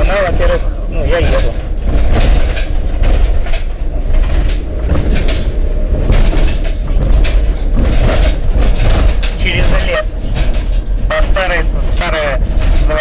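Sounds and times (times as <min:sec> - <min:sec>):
van body knocks and rattles: 0:00.0 - 0:13.0
van road rumble: 0:00.0 - 0:13.0.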